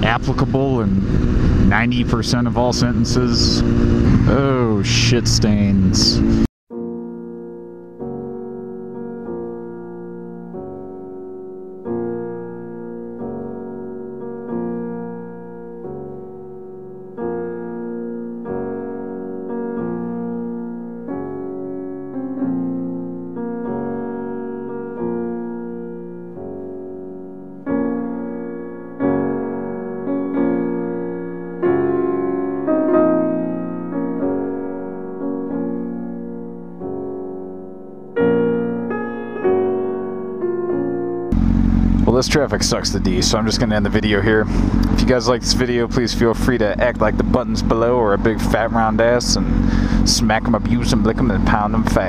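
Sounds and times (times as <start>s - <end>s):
slow piano chords: 0.0s - 5.0s, 6.2s - 42.2s.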